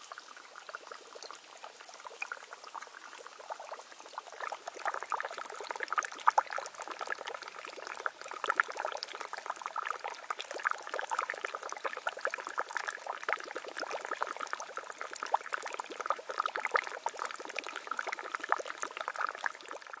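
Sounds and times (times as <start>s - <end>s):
spring water trickling and splashing: 0.0s - 20.0s.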